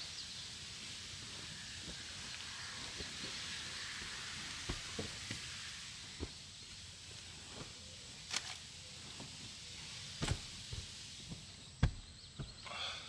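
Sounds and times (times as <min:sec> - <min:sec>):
steady background hiss: 0:00.0 - 0:13.0
mattress pad knocks and thumps: 0:10.2 - 0:10.9, 0:11.8 - 0:12.6.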